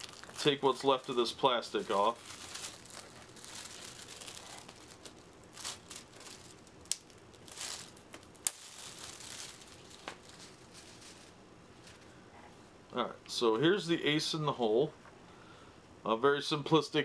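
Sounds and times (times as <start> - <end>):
plastic wrapping crinkling and tearing: 0.0 - 12.1.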